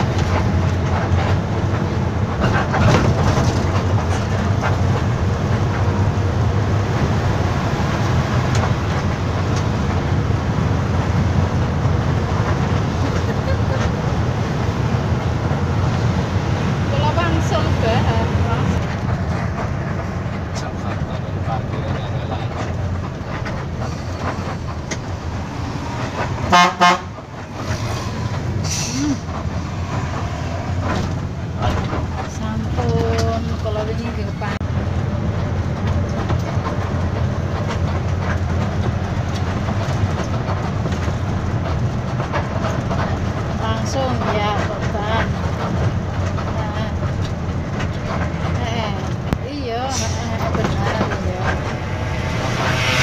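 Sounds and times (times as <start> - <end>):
bus engine and road rumble: 0.0 - 53.0
bus horn blasts: 26.4 - 27.2.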